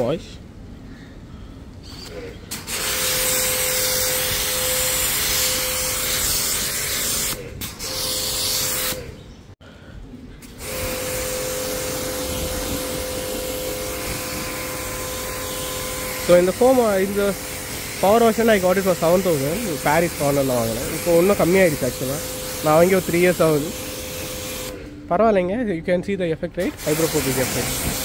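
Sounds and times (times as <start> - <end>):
pressure washer whine: 2.0 - 9.1, 10.4 - 25.0, 26.7 - 28.0
water spray hissing: 10.5 - 24.8, 26.6 - 28.0.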